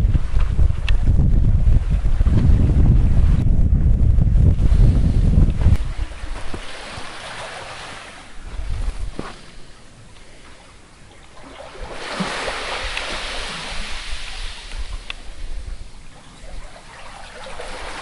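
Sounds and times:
wind buffeting microphone: 0.0s - 10.1s, 11.5s - 18.0s
sea water washing over rocks: 5.8s - 8.4s, 11.4s - 18.0s.

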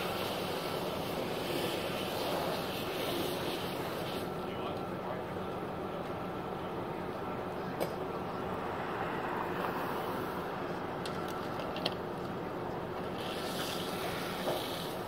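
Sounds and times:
water hissing into steam: 0.0s - 4.3s, 13.1s - 15.0s
fire hose spraying water: 0.0s - 4.5s, 13.0s - 15.0s.

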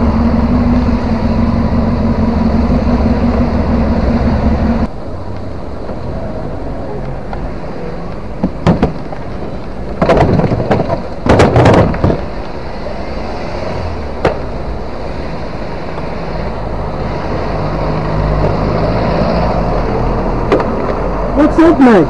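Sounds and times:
engines and traffic rumble: 0.0s - 22.0s
van hitting motorcycle knocks: 8.4s - 9.1s, 10.0s - 12.2s
banging and scraping: 8.4s - 12.6s.

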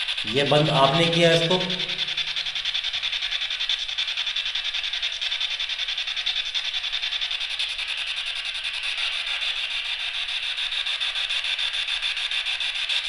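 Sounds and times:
insects chirping: 0.0s - 2.7s.

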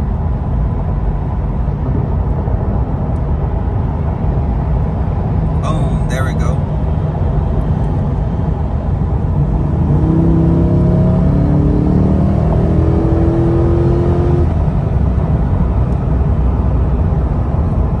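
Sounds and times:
road and tyre noise: 0.0s - 18.0s
car engine accelerating: 1.0s - 18.0s.

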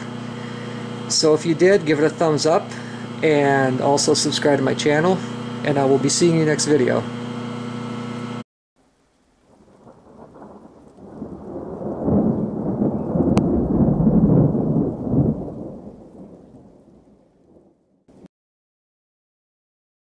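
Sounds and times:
deep rolling rumble: 9.6s - 17.0s.

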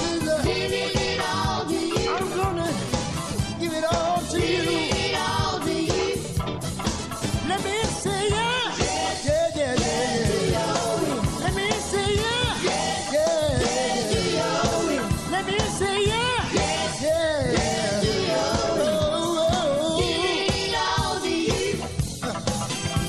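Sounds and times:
male vocal group singing gospel: 0.0s - 6.4s, 7.4s - 22.3s
instrumental backing with beat: 0.0s - 23.0s.

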